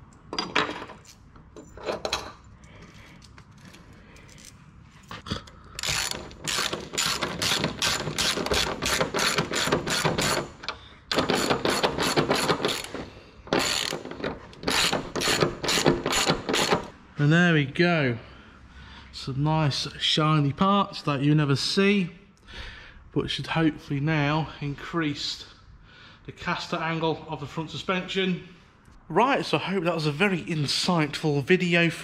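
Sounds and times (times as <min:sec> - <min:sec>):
socket ratchet clicking: 0:05.7 - 0:16.9.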